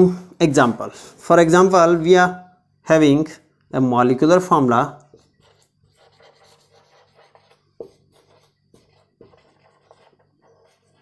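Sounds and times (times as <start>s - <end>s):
marker scratching on whiteboard: 5.1s - 11.0s.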